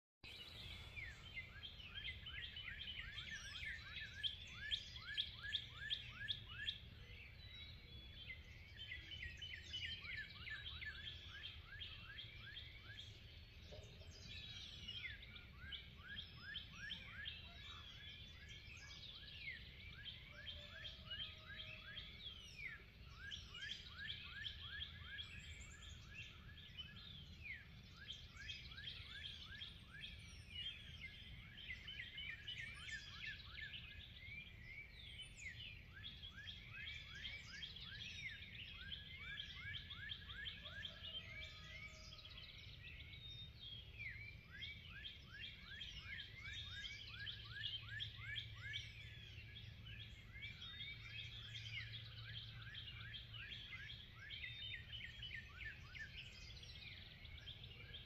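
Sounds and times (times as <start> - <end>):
small birds chirping and singing: 0.2 - 58.0.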